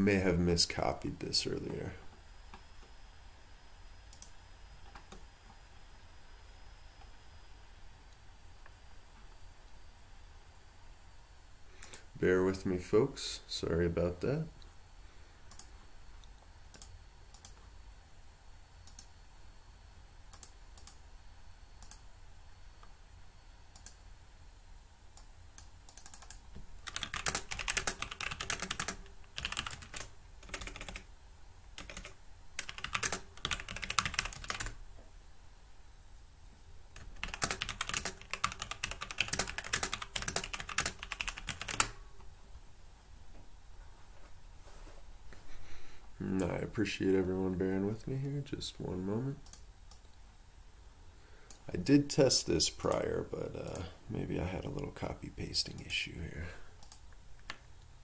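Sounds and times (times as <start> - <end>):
typing on computer keyboard: 25.9 - 31.1, 31.8 - 34.8, 37.0 - 42.0.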